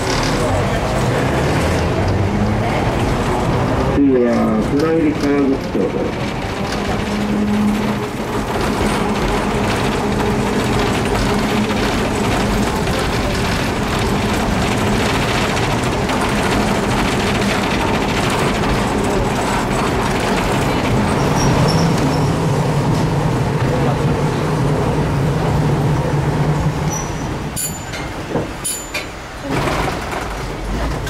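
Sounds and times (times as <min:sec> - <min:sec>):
tram wheels rumbling on rail: 0:00.0 - 0:31.0
rattling and clicking: 0:04.3 - 0:22.3.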